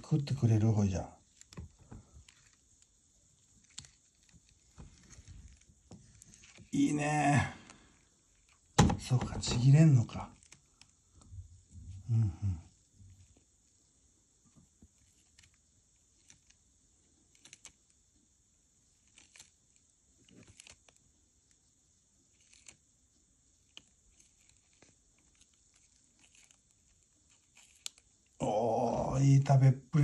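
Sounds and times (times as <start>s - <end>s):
tortoise crunching leaf: 17.2s - 17.8s, 18.9s - 21.0s, 22.3s - 22.8s, 23.6s - 28.4s.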